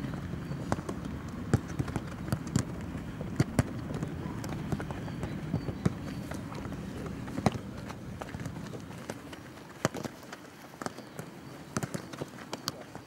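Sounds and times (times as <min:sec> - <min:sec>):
low outdoor rumble: 0:00.0 - 0:09.8
footballs being kicked: 0:00.0 - 0:13.0.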